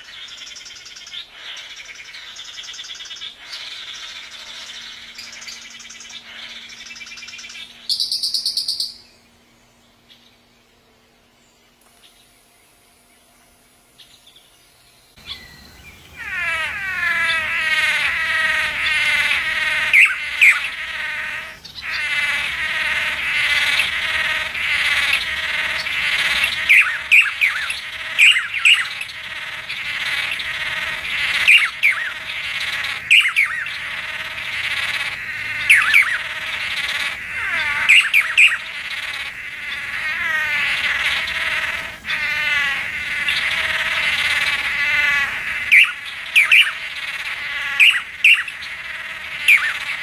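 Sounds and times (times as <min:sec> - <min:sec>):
birds calling nasally: 0:00.0 - 0:50.0
sharp bird notes: 0:15.2 - 0:34.2.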